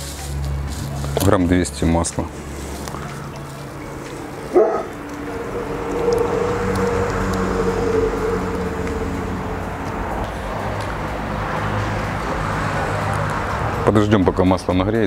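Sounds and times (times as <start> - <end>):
dog barking: 4.4 - 5.0.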